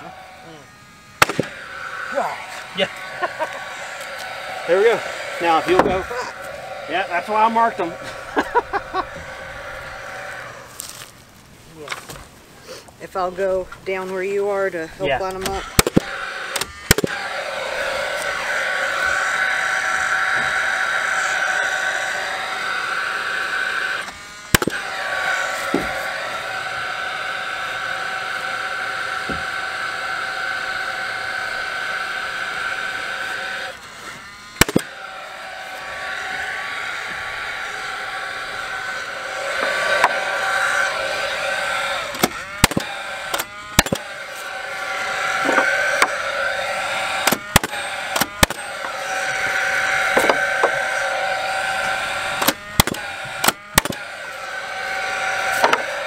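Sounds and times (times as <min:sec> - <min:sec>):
nailer fan whine: 0:00.0 - 0:56.0
nail gun shots: 0:01.2 - 0:01.6, 0:15.4 - 0:17.2, 0:24.5 - 0:24.8, 0:34.6 - 0:34.9, 0:42.2 - 0:44.1, 0:47.2 - 0:48.6, 0:52.4 - 0:54.0.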